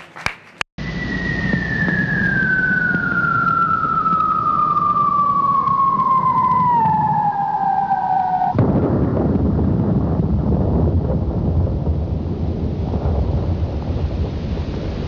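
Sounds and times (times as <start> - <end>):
clear tone sliding down in pitch: 0.8 - 8.6
rushing rumbling noise: 0.8 - 15.0.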